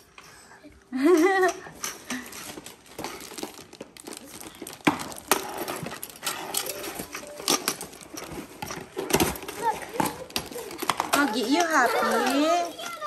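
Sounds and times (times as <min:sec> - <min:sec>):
plastic toys clicking on tile floor: 0:00.0 - 0:13.0.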